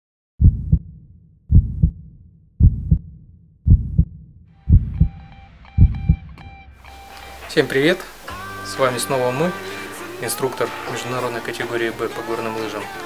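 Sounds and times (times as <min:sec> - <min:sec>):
heartbeat double thumps: 0:00.4 - 0:06.6.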